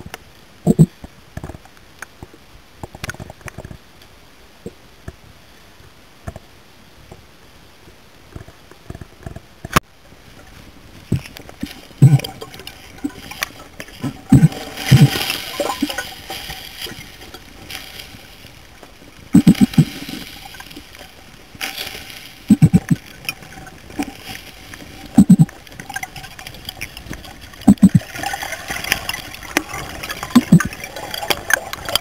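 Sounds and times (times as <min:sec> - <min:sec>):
diver's breath bubbling: 0:11.1 - 0:13.4, 0:14.0 - 0:16.2, 0:19.3 - 0:20.2, 0:22.4 - 0:23.1, 0:25.1 - 0:25.6, 0:27.6 - 0:31.3.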